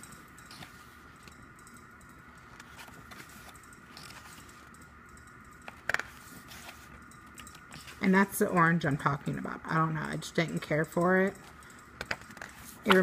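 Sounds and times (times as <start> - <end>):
faint high hum: 0.0 - 13.0
photo book pages turning: 2.5 - 4.6, 5.7 - 7.0.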